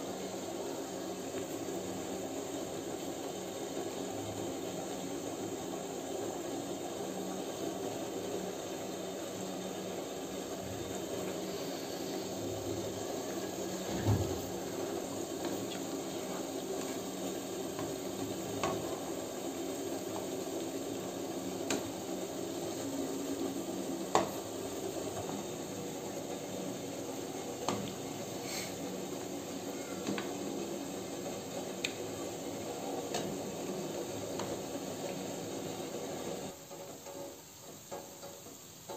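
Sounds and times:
dough balls sizzling in hot oil: 0:00.0 - 0:38.9.

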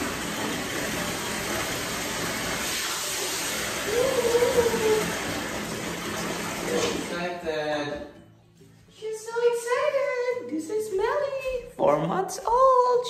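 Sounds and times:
water pouring into bathtub: 0:00.0 - 0:07.9.

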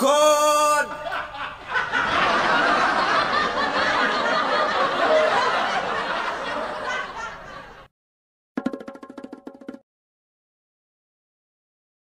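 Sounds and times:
laugh track: 0:00.4 - 0:07.9.

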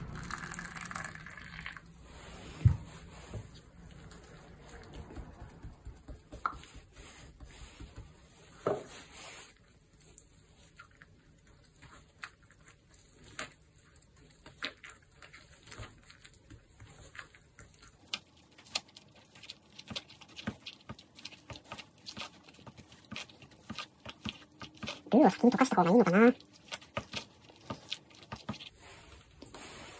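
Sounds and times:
fork stirring food in cup: 0:16.0 - 0:28.7.

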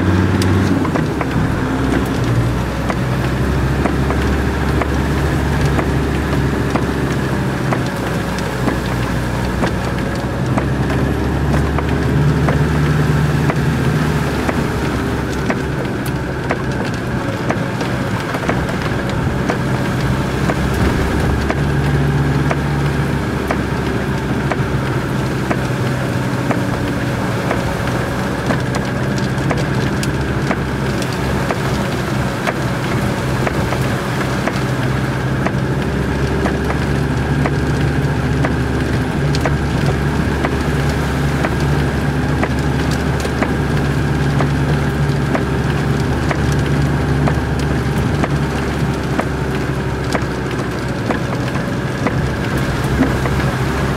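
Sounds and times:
car engine hum: 0:00.0 - 0:53.9
heavy rain on car roof: 0:00.0 - 0:53.9.

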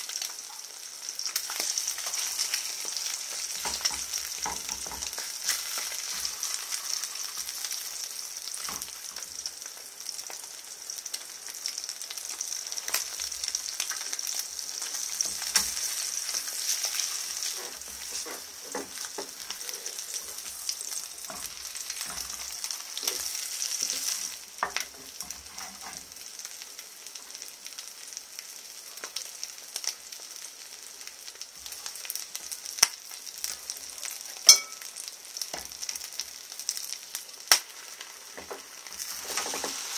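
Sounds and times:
eggs sizzling in a frying pan: 0:00.0 - 0:39.9
wooden spatula scraping a pan: 0:01.7 - 0:07.8, 0:14.8 - 0:26.2, 0:38.4 - 0:39.9.

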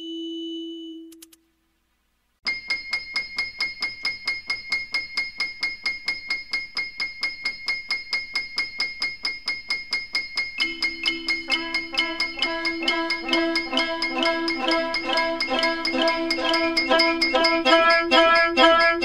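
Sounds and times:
metallic bell-like strikes: 0:02.5 - 0:19.0
held note: 0:10.6 - 0:19.0.

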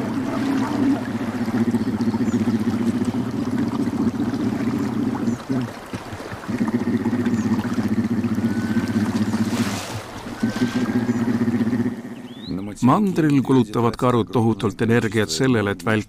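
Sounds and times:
bear cubs humming while nursing: 0:00.0 - 0:12.5.

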